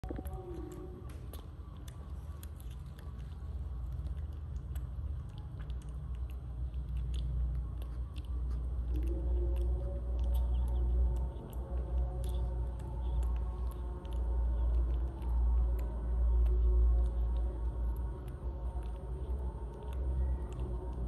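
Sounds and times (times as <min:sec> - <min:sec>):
monkey chewing with smacking clicks: 0:00.0 - 0:21.0
steady low rumble: 0:00.0 - 0:21.0.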